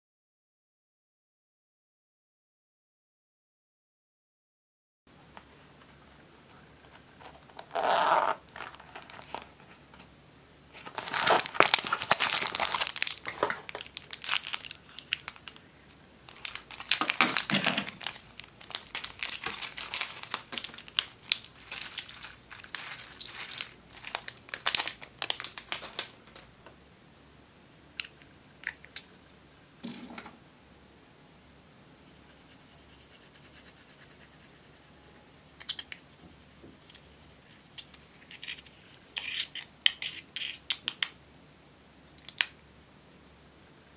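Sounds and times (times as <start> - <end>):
plastic packet crinkling: 7.4 - 9.5, 10.8 - 15.6, 16.2 - 26.5.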